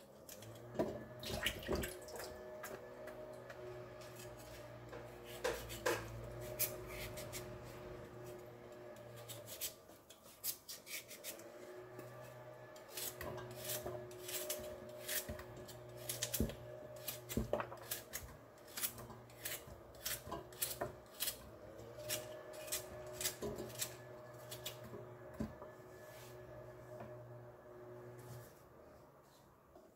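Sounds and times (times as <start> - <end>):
knife cutting carrot: 4.0 - 7.8, 9.0 - 11.5, 12.9 - 24.8.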